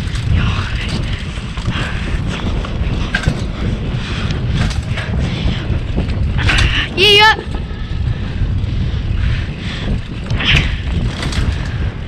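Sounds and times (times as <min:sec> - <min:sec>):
bike rattles and knocks: 0:00.0 - 0:12.0
bike tyres rolling on dirt: 0:00.0 - 0:12.0
wind buffeting: 0:00.0 - 0:12.0.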